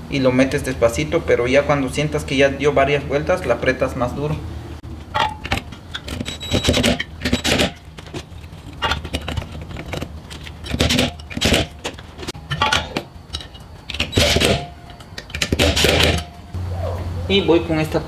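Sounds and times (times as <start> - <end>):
metal clinking and rattling: 5.0 - 16.5.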